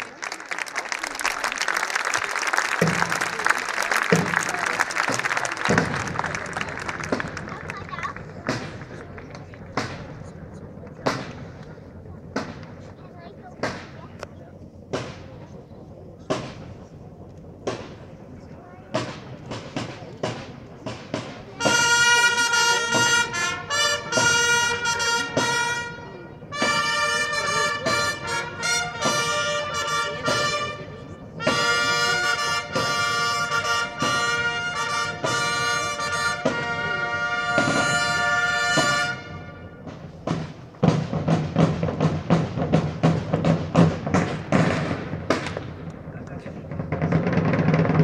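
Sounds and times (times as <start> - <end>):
drums playing steady rhythm: 2.7 - 15.6, 16.2 - 48.0
long trumpets playing fanfare: 21.6 - 40.2.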